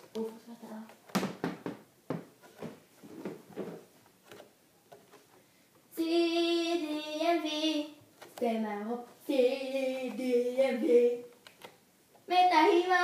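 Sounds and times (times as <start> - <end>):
soft rustling and light knocks: 0.0 - 5.4.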